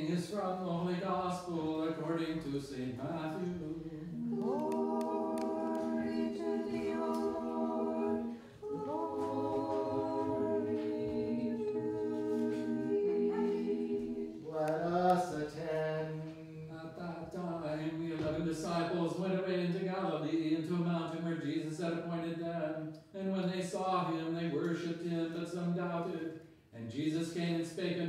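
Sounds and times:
group chanting a cappella: 2.9 - 18.6.

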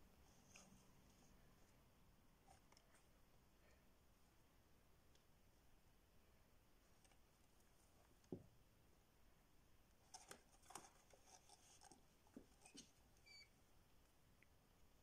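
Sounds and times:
rat scratching and rustling: 9.9 - 13.5.

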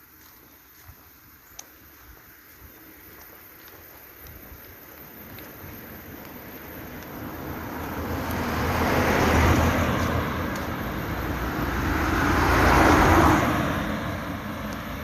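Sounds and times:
van driving past: 5.4 - 15.0
car driving past: 6.5 - 15.0.

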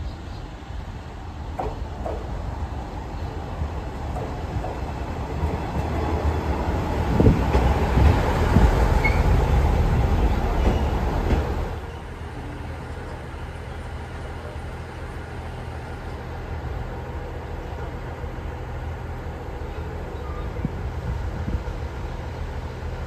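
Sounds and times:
diesel railcar passing: 0.0 - 23.0
train clunks: 1.3 - 20.8.

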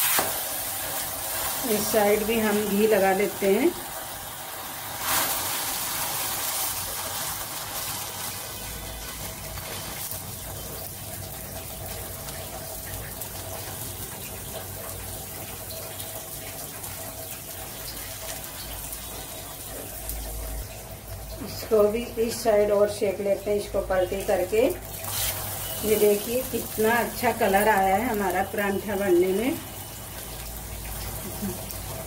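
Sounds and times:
ghee sizzling on a hot griddle: 0.0 - 32.0.

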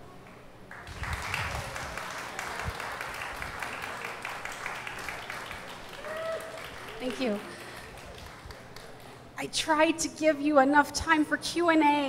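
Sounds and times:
audience applauding: 0.7 - 9.3.

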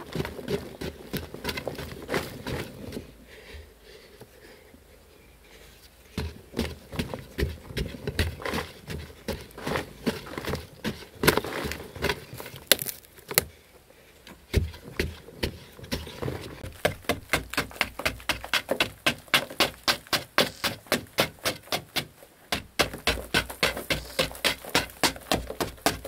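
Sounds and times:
soil falling: 6.6 - 13.5, 14.5 - 26.0
digging tool striking earth: 7.4 - 13.5, 14.5 - 26.0.

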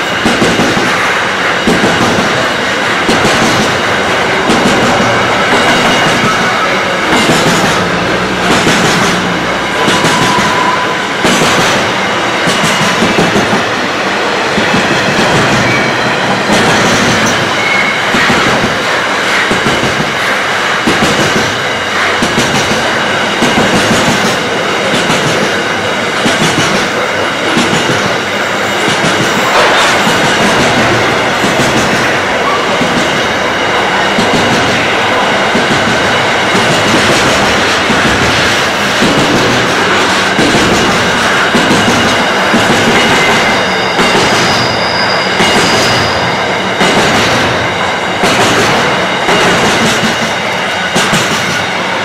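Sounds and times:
train wheels clattering over rails: 0.0 - 52.0
high wheel squeals: 9.2 - 11.2, 15.3 - 16.4, 17.2 - 18.4, 41.4 - 46.8.

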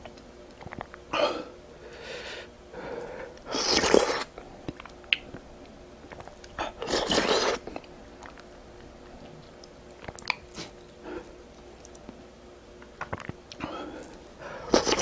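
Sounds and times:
person sniffing and breathing sharply: 1.8 - 4.3.

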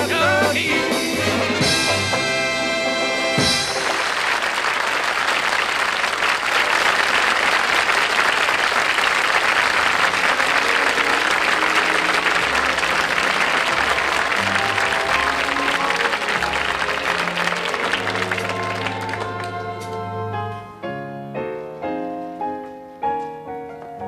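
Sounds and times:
soft band music: 0.0 - 4.1, 9.9 - 24.0
audience applauding: 3.2 - 20.2.

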